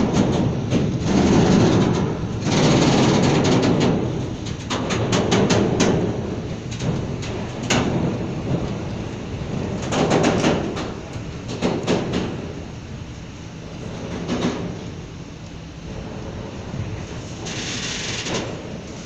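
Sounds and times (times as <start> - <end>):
wheels clicking over rail joints: 0.0 - 12.6
train rumbling on rails: 0.0 - 19.0.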